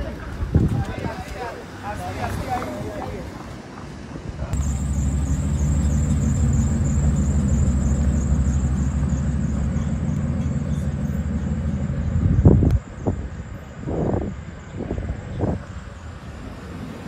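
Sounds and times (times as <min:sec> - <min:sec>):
low engine hum: 0:04.4 - 0:17.0.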